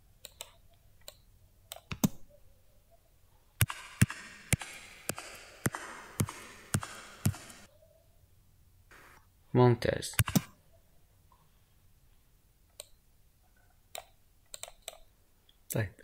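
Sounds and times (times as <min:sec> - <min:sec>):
heel clicks echoing in hall: 0:03.6 - 0:07.7
separate clicks: 0:03.6 - 0:07.7, 0:10.2 - 0:10.6, 0:13.9 - 0:15.1.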